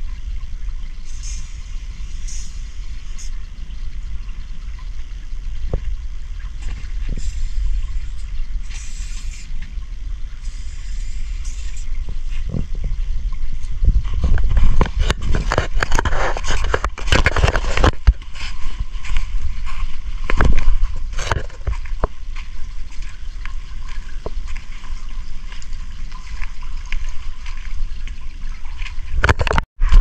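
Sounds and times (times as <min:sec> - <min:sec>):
flowing creek water: 0:00.0 - 0:30.0
wind on microphone: 0:00.0 - 0:30.0
footsteps on concrete pipe: 0:13.6 - 0:29.2.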